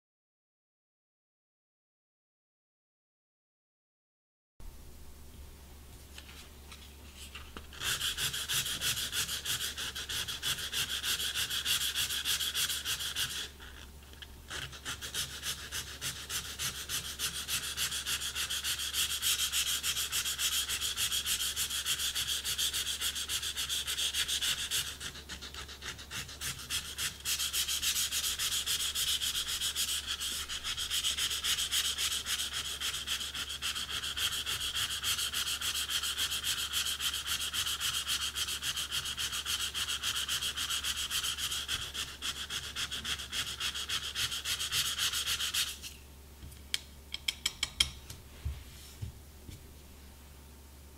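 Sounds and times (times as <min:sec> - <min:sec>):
sandpaper rasping on reed: 0:07.8 - 0:13.7, 0:14.5 - 0:46.0.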